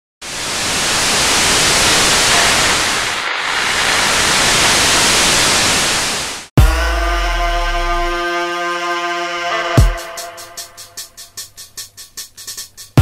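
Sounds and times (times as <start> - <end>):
deep bass hit: 6.6 - 8.2
electronic music with synth chord: 6.6 - 11.3.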